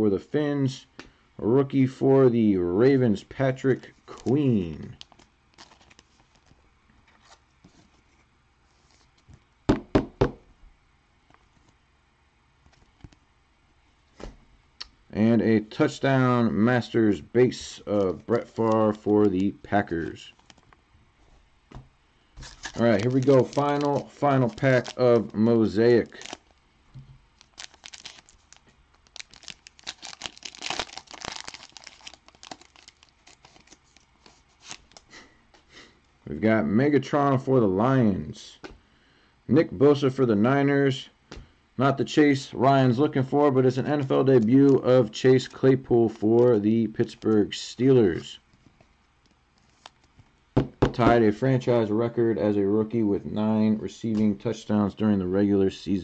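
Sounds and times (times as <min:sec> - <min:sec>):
wrapper tearing and crinkling: 0:04.1 - 0:06.6, 0:22.4 - 0:26.6, 0:27.4 - 0:35.0.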